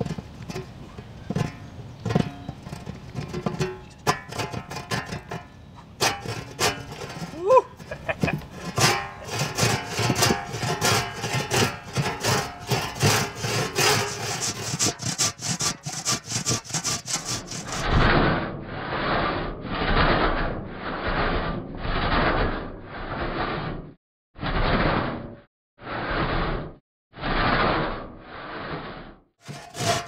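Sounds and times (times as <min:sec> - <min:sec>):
rip saw rasping through wood: 0:06.0 - 0:17.9, 0:29.4 - 0:30.0.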